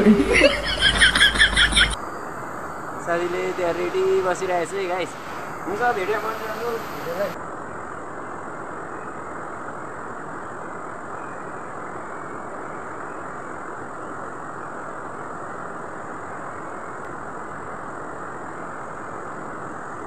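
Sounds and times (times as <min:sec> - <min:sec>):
river water rushing: 0:03.2 - 0:07.4.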